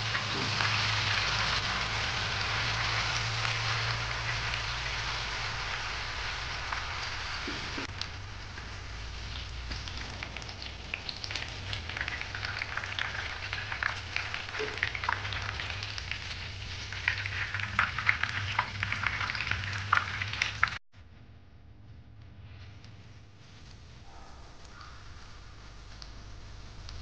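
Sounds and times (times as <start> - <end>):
tofu sizzling in hot oil: 0.0 - 20.8
low steady hum: 0.0 - 27.0.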